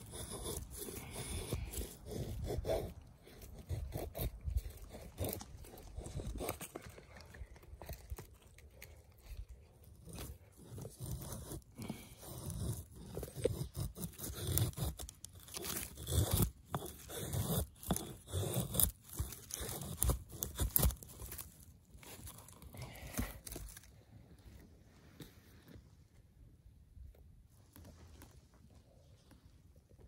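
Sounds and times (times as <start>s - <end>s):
axe scraping wood: 0.0s - 23.9s.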